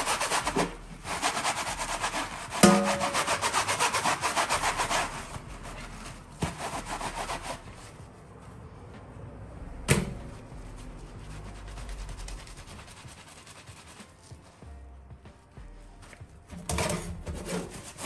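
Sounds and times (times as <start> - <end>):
sponge scrubbing hard surface: 0.0 - 8.2, 10.2 - 14.7, 17.2 - 18.0.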